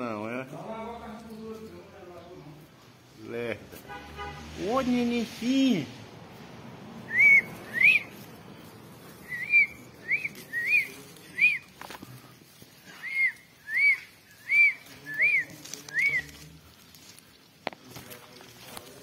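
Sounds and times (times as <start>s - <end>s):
short whistled notes: 7.1s - 8.2s, 12.9s - 16.3s.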